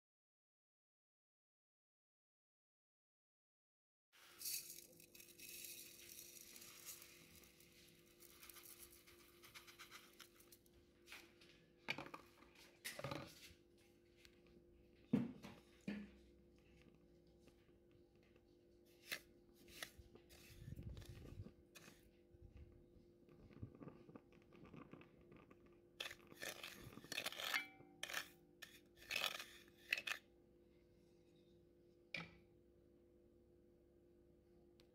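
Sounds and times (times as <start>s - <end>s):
sugar grains pattering: 4.2s - 10.6s.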